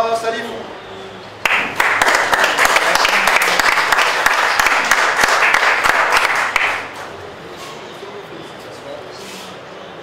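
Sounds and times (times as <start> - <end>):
crowd applauding: 1.4 - 7.1.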